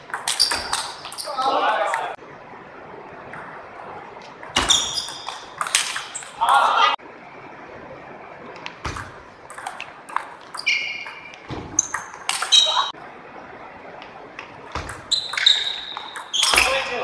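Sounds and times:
sneakers squeaking on wooden floor: 0.0 - 2.1, 4.2 - 6.9, 8.6 - 12.9, 14.4 - 17.0
table tennis ball hits: 0.1 - 1.2, 4.2 - 6.7, 8.6 - 12.9, 14.4 - 17.0.

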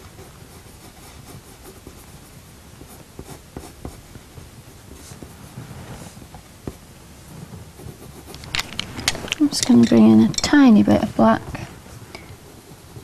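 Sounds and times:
pencil scratching on paper: 0.0 - 5.3, 7.7 - 11.7
pencil point tapping: 7.8 - 13.0.

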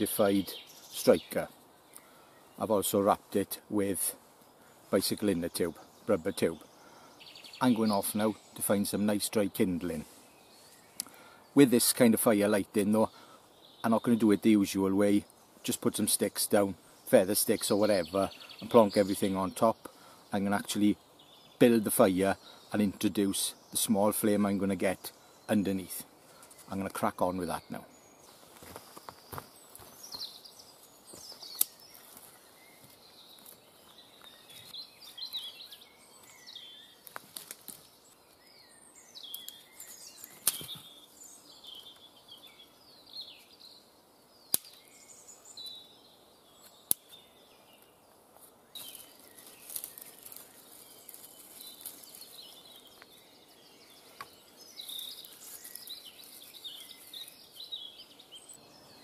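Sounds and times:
birds chirping: 0.0 - 59.0
twigs rustling: 28.2 - 38.5, 39.2 - 42.1, 46.6 - 58.5
dry sticks snapping: 31.3 - 32.3, 37.0 - 38.3, 39.3 - 40.9, 44.5 - 44.9, 46.6 - 47.2, 48.8 - 53.2, 54.2 - 57.4.

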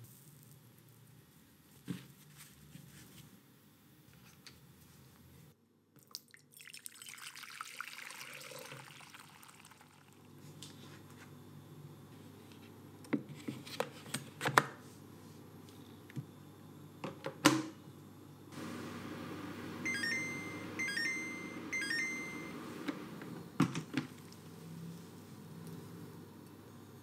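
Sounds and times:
electronic beep chimes: 19.8 - 22.6.

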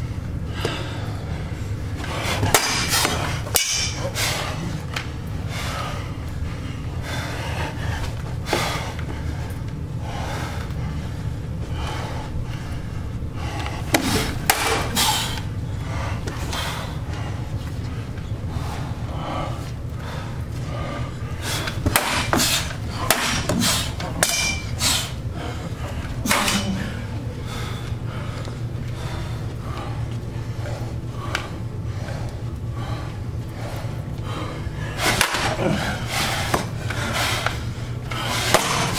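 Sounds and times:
low steady hum: 0.0 - 38.9
machetes striking shields: 2.4 - 4.0, 13.9 - 15.0, 21.8 - 24.8, 38.5 - 38.9.

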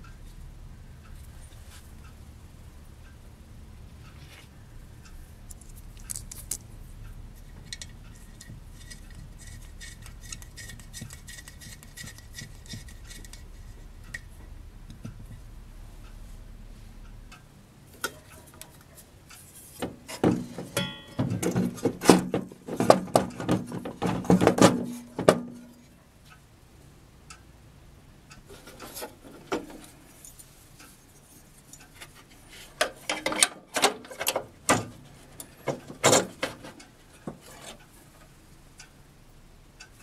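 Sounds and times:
low hum: 0.0 - 19.6
knocks and clicks of metal and wood: 7.6 - 15.4, 19.8 - 25.9, 32.8 - 37.8.

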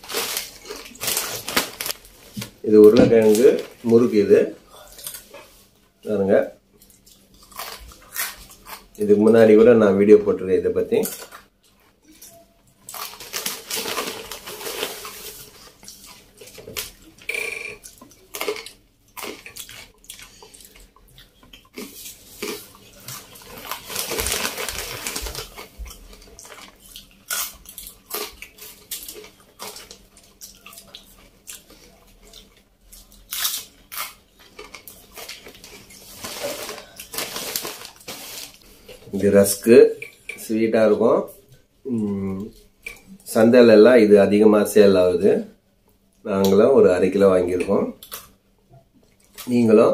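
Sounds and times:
plastic snack bag crinkling: 0.0 - 5.3, 12.2 - 17.2, 17.8 - 39.7
crunching fried snacks: 12.8 - 17.0, 17.7 - 38.6.

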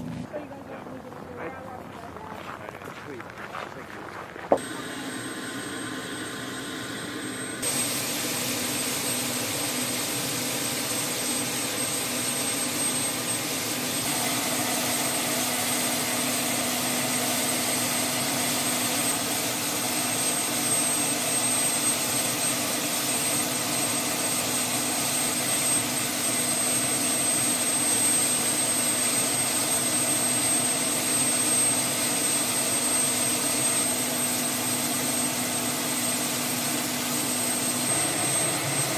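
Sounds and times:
helicopter turbine whine: 0.0 - 38.9.

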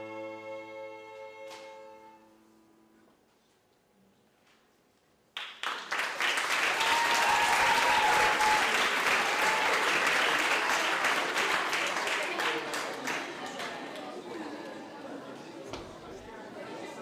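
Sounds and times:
audience applause: 5.4 - 14.9.

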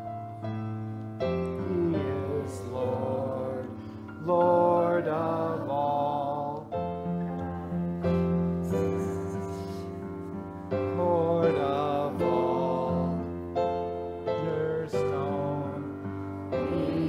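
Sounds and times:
piano accompaniment: 0.0 - 17.0
choir singing worship song: 1.6 - 8.4, 10.9 - 17.0.

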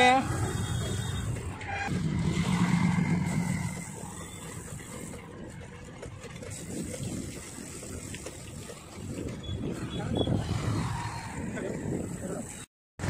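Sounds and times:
motorcycle passing close: 0.0 - 4.9
motorcycle engine and road rumble: 0.0 - 12.7.

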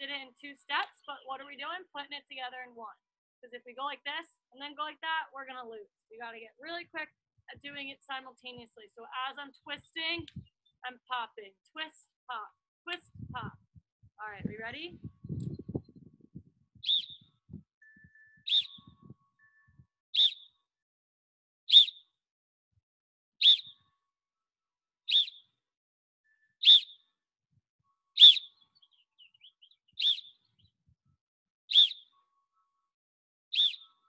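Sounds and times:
sharp whistle blasts: 16.8 - 17.2, 17.8 - 18.9, 20.2 - 20.4, 21.7 - 21.9, 23.4 - 23.7, 26.6 - 26.9, 28.2 - 28.4.

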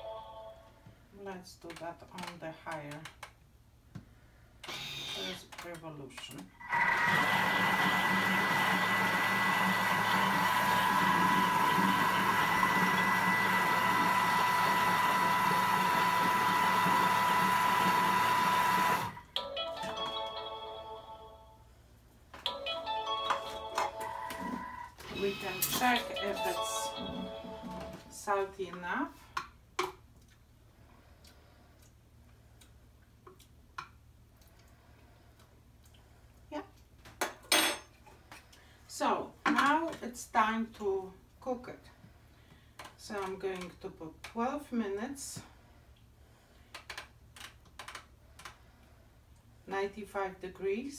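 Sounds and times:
food processor whirring: 6.6 - 19.2.

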